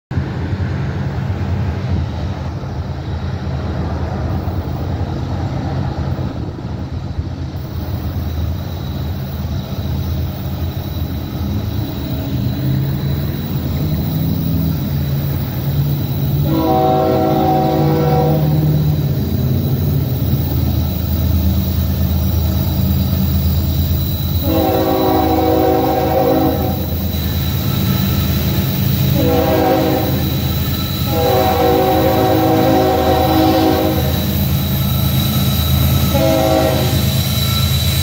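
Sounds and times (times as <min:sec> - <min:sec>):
diesel train rumble: 0:00.0 - 0:38.0
locomotive air horn: 0:16.4 - 0:19.0, 0:24.4 - 0:27.0, 0:29.0 - 0:34.4, 0:36.0 - 0:37.2.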